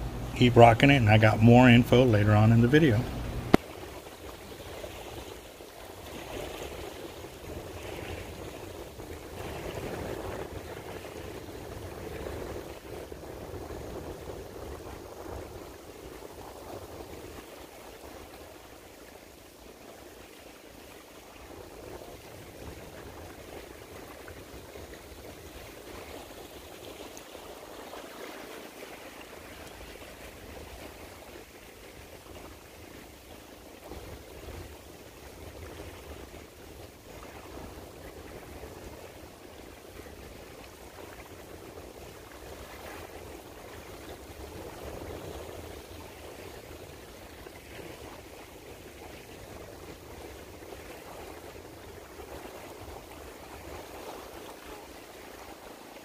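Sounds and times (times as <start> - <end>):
low rushing shoreline noise: 0.0 - 56.0.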